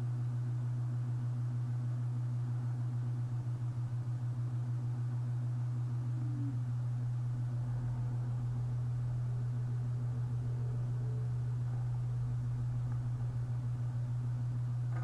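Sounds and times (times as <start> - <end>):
steady low hum: 0.0 - 15.0
faint regular pulsing: 4.4 - 15.0.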